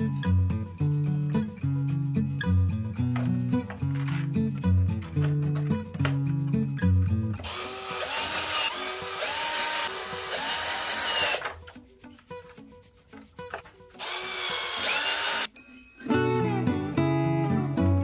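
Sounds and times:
cordless drill motor whine: 7.4 - 11.4, 14.0 - 15.5.

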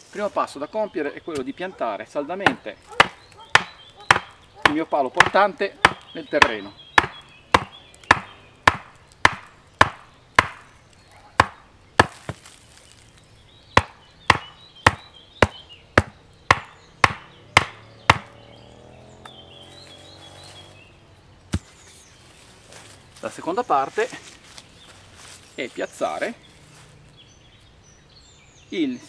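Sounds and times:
knocks driving wooden pole: 2.4 - 10.7, 13.8 - 18.4.

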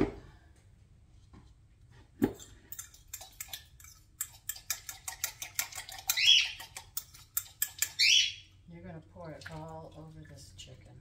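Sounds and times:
fork clicking against glass: 2.7 - 8.0
bird squawking: 6.1 - 6.6, 8.0 - 8.5.

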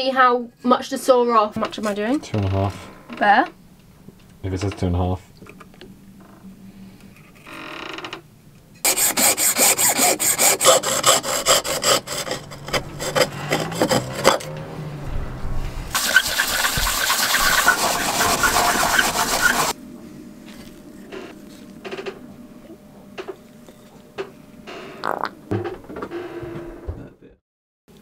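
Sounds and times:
hacksaw rasping through tube: 8.8 - 14.5, 16.0 - 19.8.

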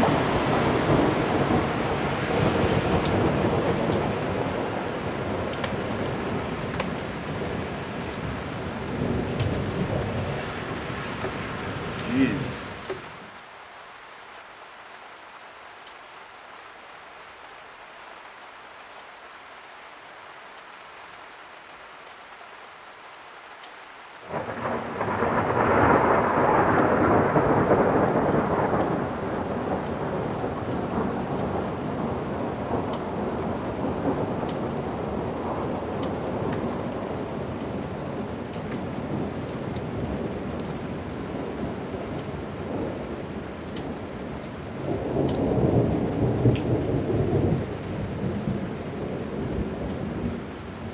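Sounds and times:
thunder rumbling: 0.0 - 12.7, 24.3 - 40.7
steady rain falling: 0.0 - 50.9.

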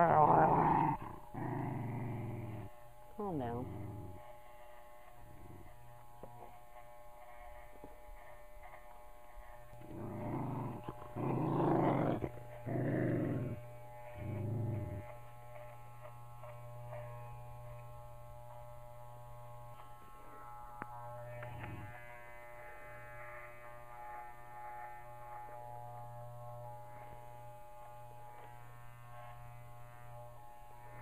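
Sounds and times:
small dog growling: 0.0 - 6.6, 9.5 - 17.2, 21.3 - 22.1
electric clippers humming: 0.0 - 31.0.

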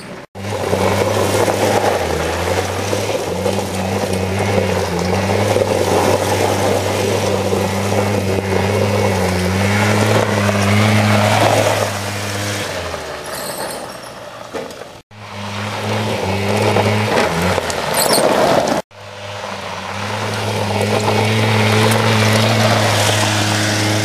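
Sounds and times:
quad bike engine running: 0.0 - 14.4, 15.1 - 24.0.

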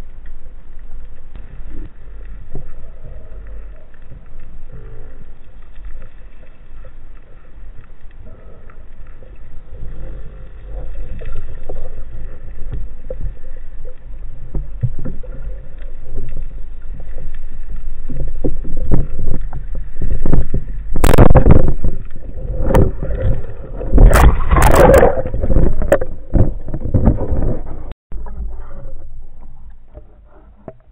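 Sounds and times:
muffled underwater rumble: 0.0 - 30.9
water splashing: 0.6 - 28.0.

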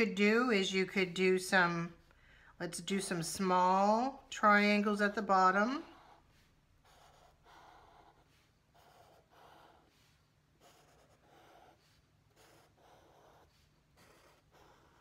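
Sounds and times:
marker scratching on paper: 5.0 - 15.0.

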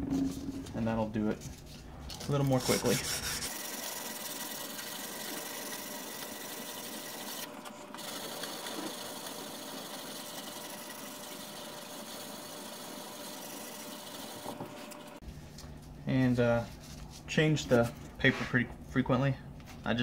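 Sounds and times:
sandpaper scraping steel edge: 2.3 - 5.8.

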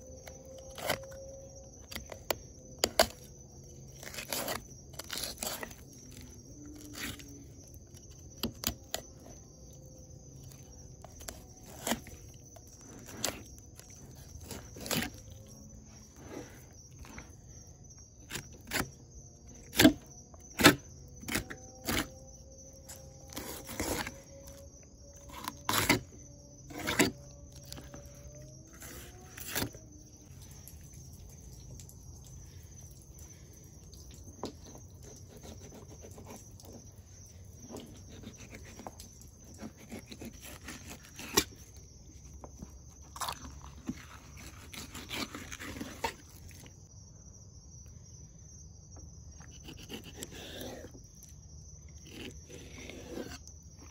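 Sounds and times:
knife cutting through fish ribs: 11.0 - 15.6, 19.6 - 22.2, 22.9 - 24.5, 25.2 - 26.1, 37.7 - 41.8, 43.2 - 46.7, 49.5 - 51.0, 52.0 - 53.9.

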